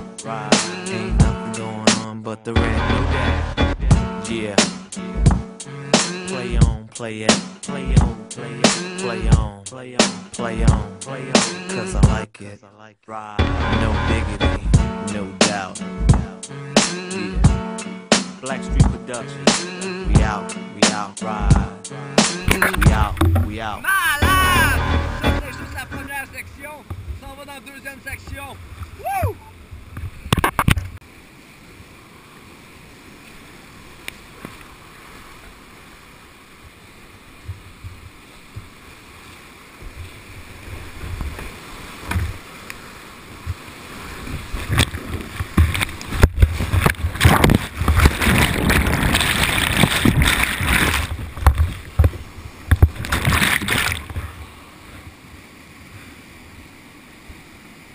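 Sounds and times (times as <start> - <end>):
water splashing against boat: 13.7 - 57.9
whitewater rapids rushing: 22.2 - 29.7, 31.0 - 57.9.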